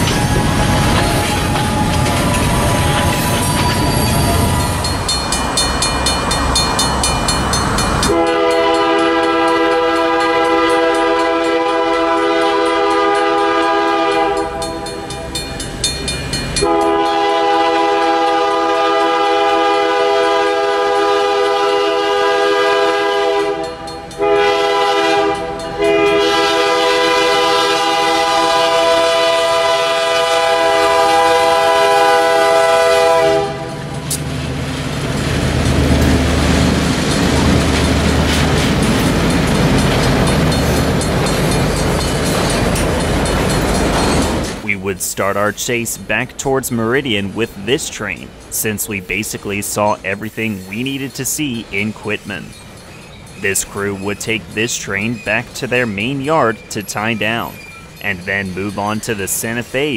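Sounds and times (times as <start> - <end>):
locomotive engine and wheel noise: 0.0 - 59.9
locomotive air horn blasts: 8.1 - 15.0, 16.6 - 33.8.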